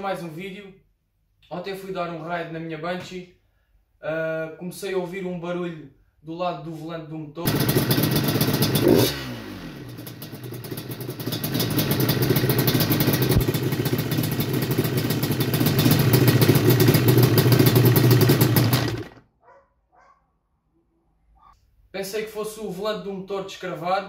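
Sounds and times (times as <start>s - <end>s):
two-stroke engine running: 7.5s - 19.2s
fast even rattle: 10.0s - 19.2s.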